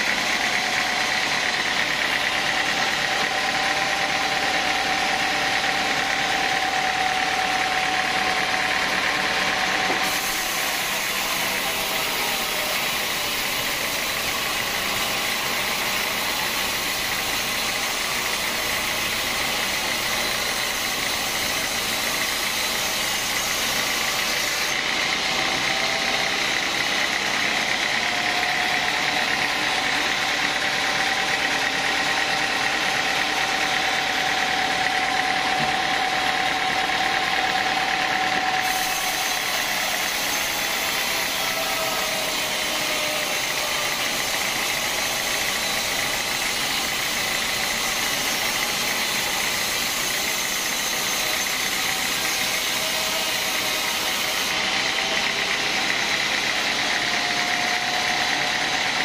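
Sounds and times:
band saw cutting log: 0:00.0 - 0:59.0.

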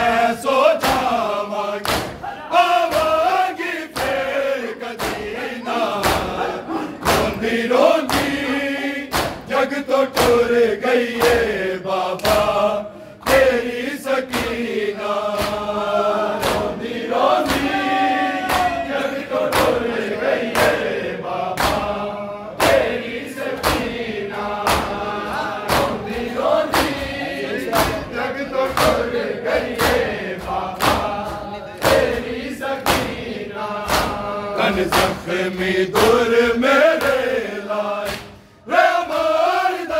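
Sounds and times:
men chanting together: 0:00.0 - 0:39.9
hands slapping chests: 0:00.8 - 0:03.3, 0:03.9 - 0:04.3, 0:05.0 - 0:09.5, 0:10.1 - 0:19.9, 0:20.5 - 0:20.9, 0:21.5 - 0:22.0, 0:22.6 - 0:24.0, 0:24.6 - 0:28.1, 0:28.7 - 0:33.2, 0:33.8 - 0:36.3, 0:36.9 - 0:37.3, 0:38.0 - 0:38.4.

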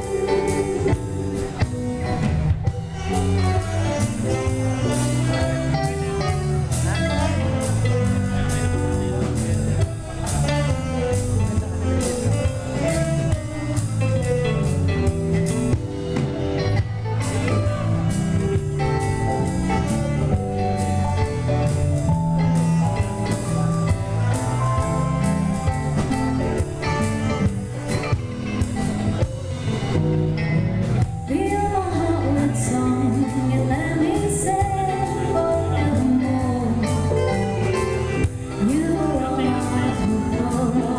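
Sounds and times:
woman singing: 0:00.0 - 0:01.7, 0:31.2 - 0:37.8, 0:38.4 - 0:40.9
bass guitar: 0:00.0 - 0:40.9
drum kit beat: 0:00.0 - 0:40.9
electric guitars: 0:00.0 - 0:40.9
keyboard: 0:00.0 - 0:40.9.

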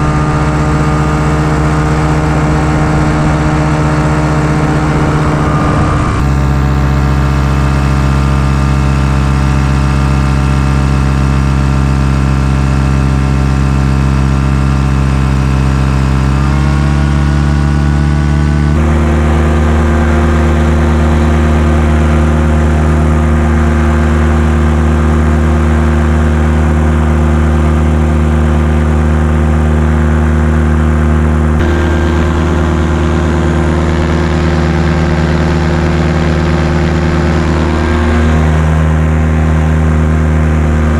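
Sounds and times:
paramotor engine and propeller: 0:00.0 - 0:40.9.

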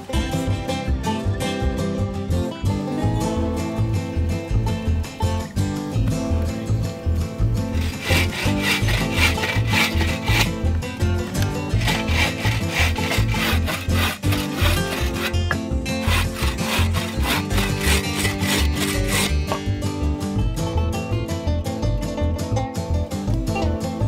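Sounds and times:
background music: 0:00.0 - 0:24.0
saw cutting log: 0:07.7 - 0:10.7, 0:11.6 - 0:19.7.

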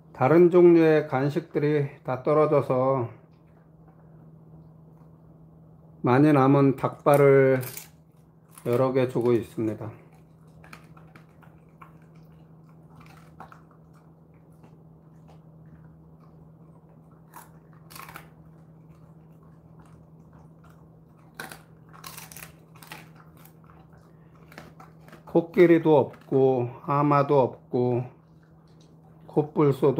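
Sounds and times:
steady low hum: 0:00.0 - 0:29.9
dog chewing and crunching: 0:06.4 - 0:29.9.

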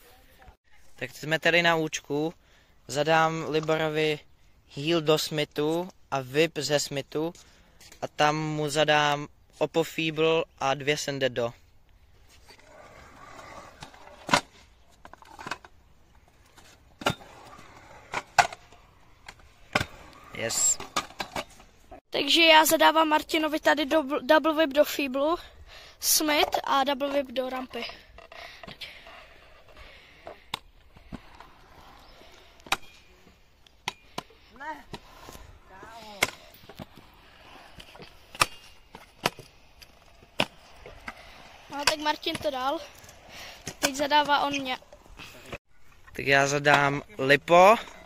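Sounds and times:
skateboard wheels rolling: 0:12.0 - 0:22.0, 0:26.0 - 0:48.0
faint scraping: 0:12.1 - 0:22.0, 0:27.3 - 0:46.0.

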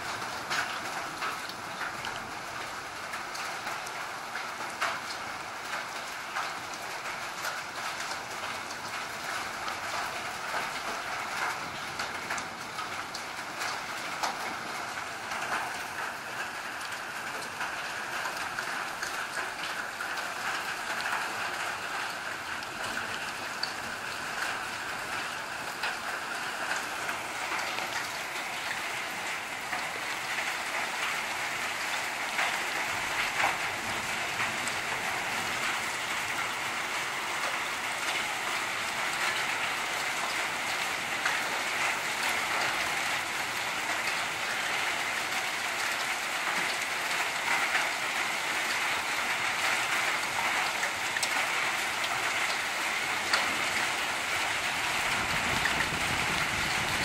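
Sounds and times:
heavy rain on hard ground: 0:00.0 - 0:57.0
raindrop taps: 0:04.7 - 0:21.3.

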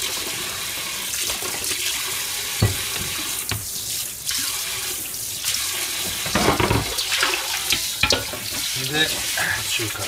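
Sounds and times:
dishes knocking: 0:02.6 - 0:03.7, 0:06.0 - 0:07.0, 0:07.7 - 0:08.7
tap running into sink: 0:02.6 - 0:03.7, 0:06.0 - 0:09.3.

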